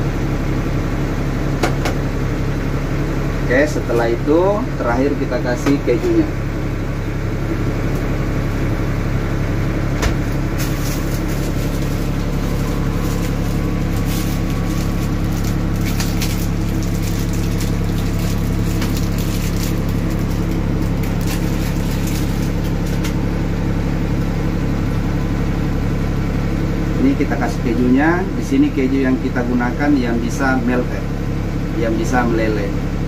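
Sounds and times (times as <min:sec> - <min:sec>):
steady low hum: 0:00.0 - 0:33.0
hands spreading cheese rustling: 0:10.5 - 0:23.2.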